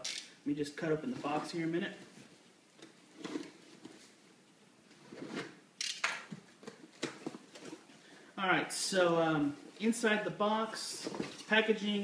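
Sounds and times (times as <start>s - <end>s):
cardboard rustling: 1.1s - 4.2s, 6.4s - 8.1s, 10.8s - 11.6s.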